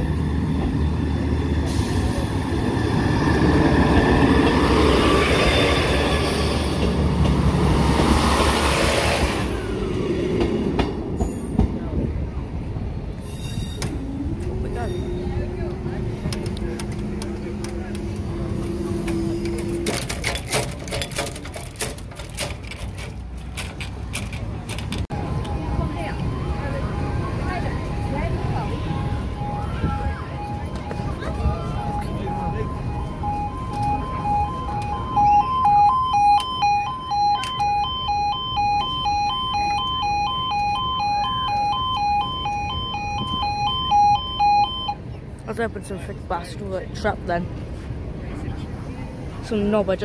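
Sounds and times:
sharp clicks and rattles: 0:19.4 - 0:25.1
level crossing two-tone alarm: 0:25.4 - 0:45.0.

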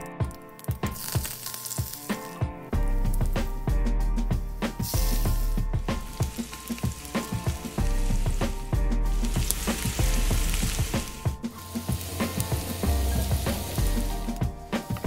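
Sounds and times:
background music with steady beat: 0:00.0 - 0:15.0
food sizzling in hot oil: 0:00.8 - 0:02.4, 0:04.8 - 0:15.0.

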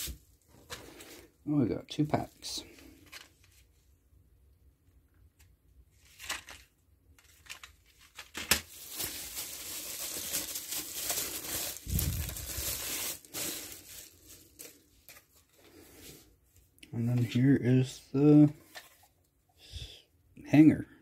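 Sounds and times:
bubble wrap crinkling: 0:06.0 - 0:16.2.

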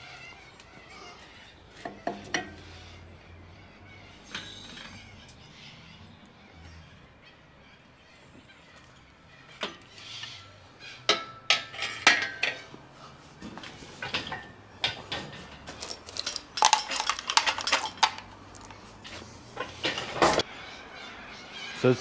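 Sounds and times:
metal tools clinking on engine: 0:11.0 - 0:12.8, 0:13.4 - 0:20.5.

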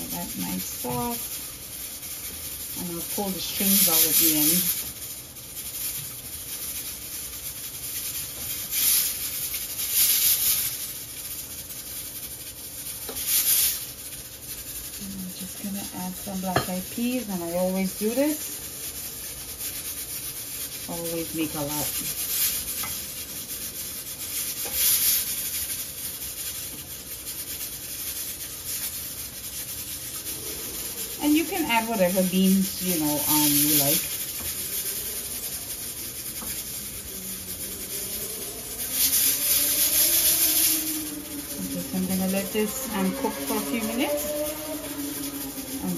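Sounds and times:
steady hiss: 0:00.0 - 0:45.9
spoon scraping a metal pot: 0:15.5 - 0:23.4, 0:29.9 - 0:45.9.

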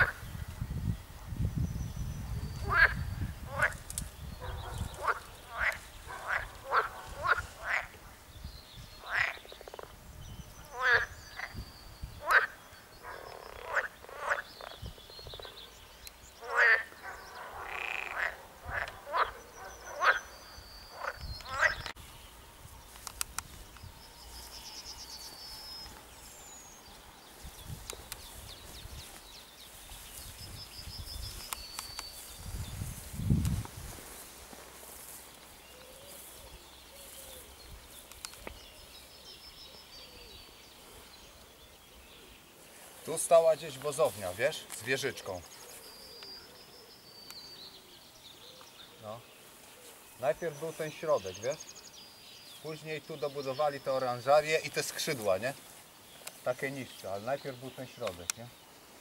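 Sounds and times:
frogs croaking: 0:00.0 - 0:00.4, 0:02.5 - 0:08.3, 0:08.9 - 0:33.1.

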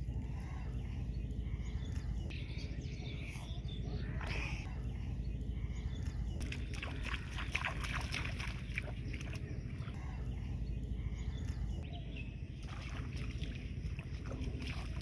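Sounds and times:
steady low rumble: 0:00.0 - 0:15.0
feet splashing through shallow water: 0:06.4 - 0:10.0, 0:12.5 - 0:15.0.

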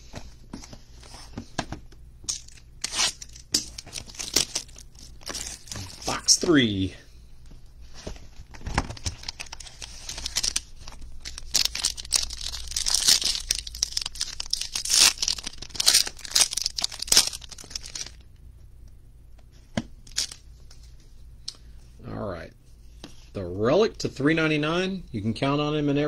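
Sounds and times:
foil wrapper crackling: 0:02.3 - 0:06.5, 0:08.6 - 0:18.2, 0:20.1 - 0:20.4.

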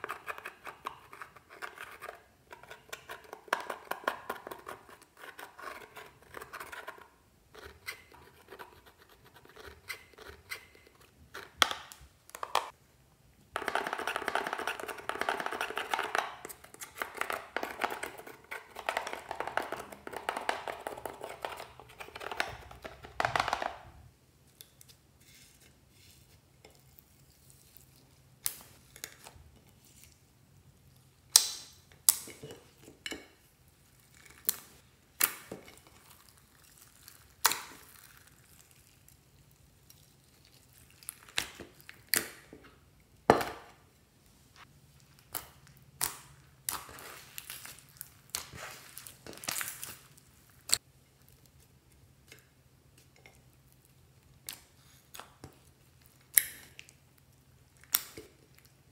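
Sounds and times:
metal spatula scraping makeup: 0:00.0 - 0:11.7, 0:13.6 - 0:23.0, 0:25.2 - 0:27.4.

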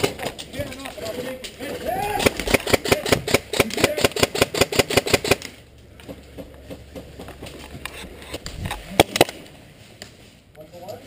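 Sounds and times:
airsoft rifle rapid shots: 0:02.1 - 0:05.6.

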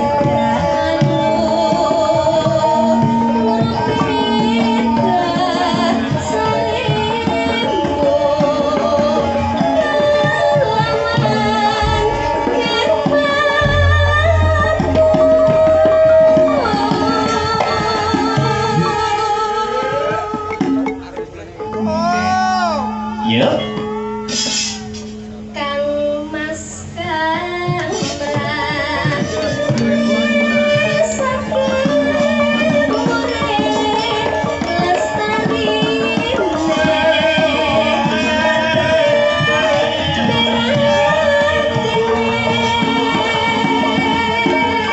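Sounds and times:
woman singing into a microphone: 0:00.0 - 0:20.8, 0:25.5 - 0:44.9
hand drum strokes: 0:00.0 - 0:25.9
gamelan ensemble playing: 0:00.0 - 0:26.0, 0:29.2 - 0:44.9
gamelan playing: 0:20.4 - 0:25.6.

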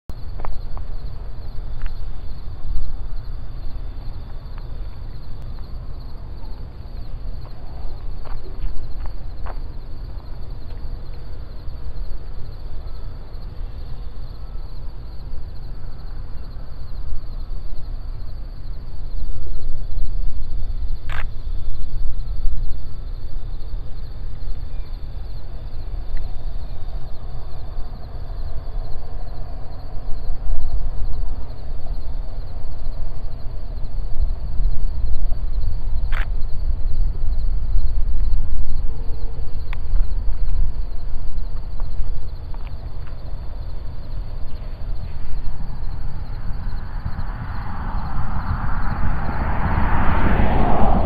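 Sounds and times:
wind buffeting microphone: 0:16.7 - 0:51.0.

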